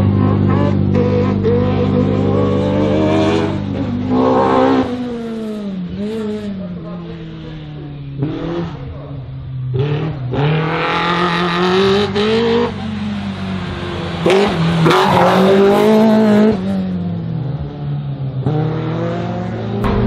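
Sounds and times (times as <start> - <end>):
race car engine revving: 0.0 - 20.0.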